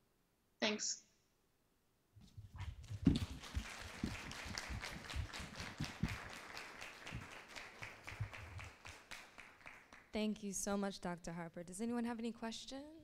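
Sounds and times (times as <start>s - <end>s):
audience applauding: 2.8s - 10.2s.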